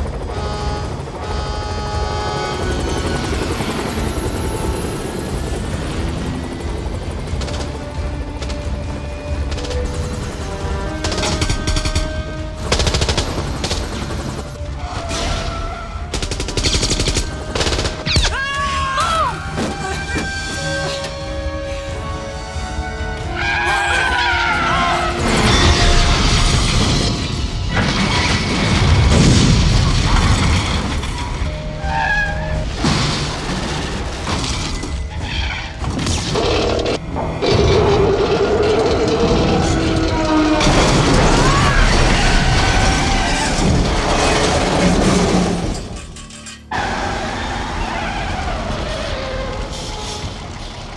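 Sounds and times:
heavy truck driving: 0.0 - 12.7, 19.4 - 50.9
film score music: 0.0 - 50.9
crash booms and clattering: 25.2 - 31.4, 40.6 - 46.0.

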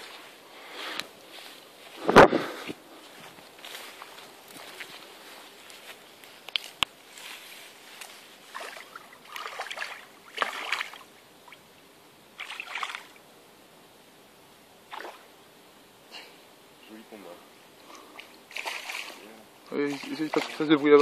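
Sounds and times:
fish splashing in water: 8.5 - 11.6, 12.4 - 13.2, 14.9 - 15.2, 18.2 - 19.2, 19.9 - 20.8.

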